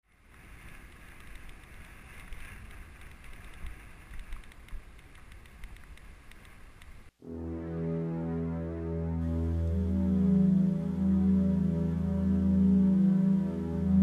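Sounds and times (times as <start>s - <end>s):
slow background music: 7.2s - 14.0s.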